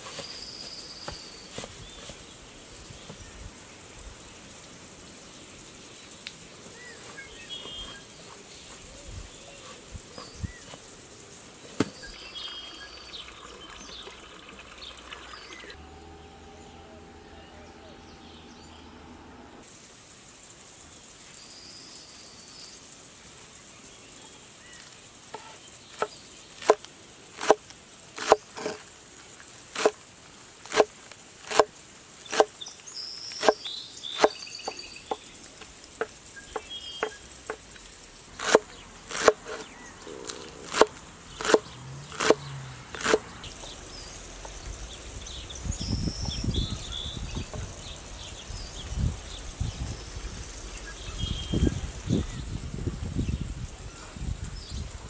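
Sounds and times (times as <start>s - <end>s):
birds chirping: 0.0s - 19.6s, 32.2s - 55.0s
knife chopping on wooden board: 27.4s - 27.6s, 28.2s - 28.8s, 29.8s - 30.0s, 30.7s - 30.9s, 31.5s - 31.7s, 32.3s - 32.5s, 33.4s - 33.6s, 34.2s - 34.8s, 38.4s - 39.7s, 40.7s - 41.6s, 43.0s - 43.2s.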